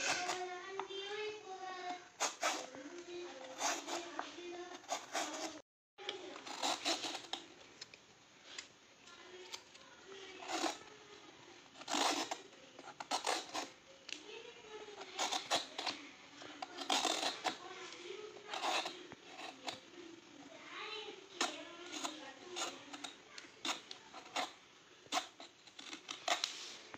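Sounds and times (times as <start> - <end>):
knife scraping and slicing gourd: 0.0 - 0.5, 4.8 - 5.6, 6.4 - 7.4, 10.4 - 10.8, 11.8 - 13.7, 15.0 - 16.0, 16.6 - 17.6, 18.4 - 19.8, 21.4 - 26.8.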